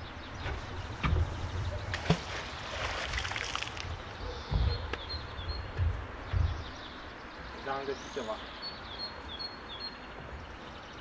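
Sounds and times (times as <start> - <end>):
magnet splashing into water: 1.9 - 3.9
wind buffeting microphone: 3.8 - 6.8
bird chirping: 4.0 - 11.0.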